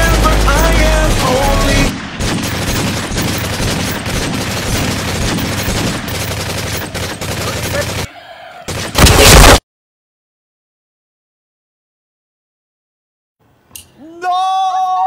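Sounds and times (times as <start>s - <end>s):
rapid automatic gunfire: 0.0s - 8.1s.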